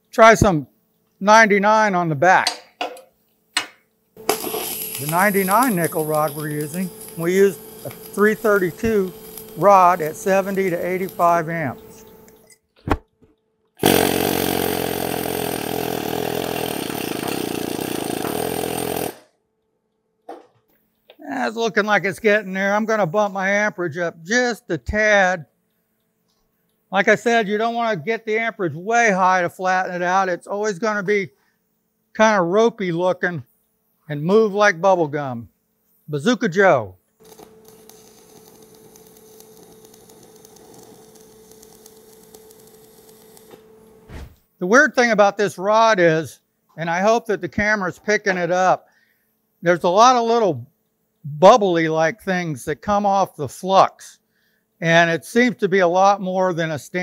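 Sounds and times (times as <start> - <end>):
needle scaler hammering metal: 3.6 - 12.3
welding arc crackling: 4.2 - 12.5, 13.8 - 19.2, 37.2 - 44.0.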